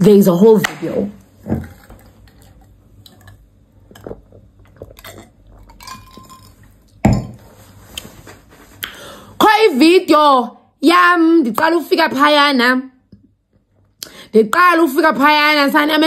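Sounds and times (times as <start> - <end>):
person sipping a drink: 3.2 - 6.8
glass handling noises: 5.0 - 7.5.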